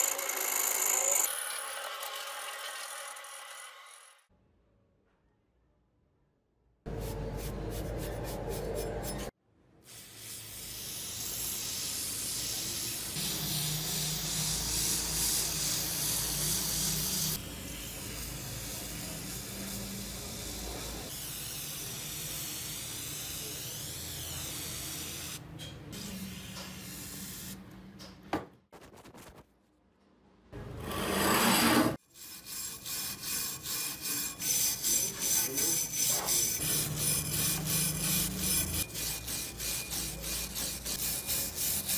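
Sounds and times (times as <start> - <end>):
wire brush rasping on metal: 30.9 - 41.9.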